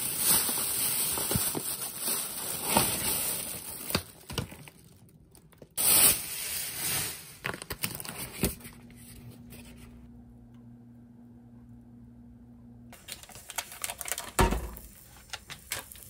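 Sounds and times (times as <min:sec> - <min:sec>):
plastic bags crinkling: 0:00.0 - 0:09.0, 0:13.0 - 0:16.0
faint steady hum: 0:07.4 - 0:16.0.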